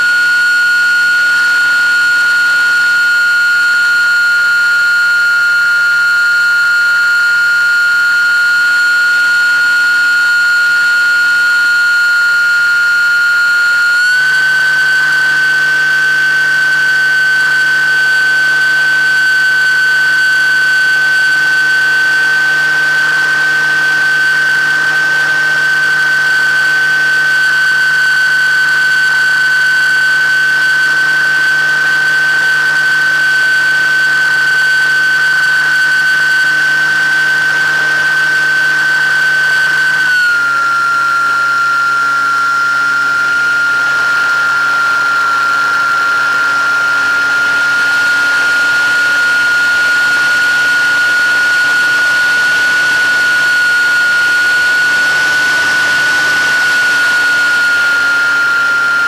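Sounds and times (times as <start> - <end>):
model aircraft motor whine: 0.0 - 59.0.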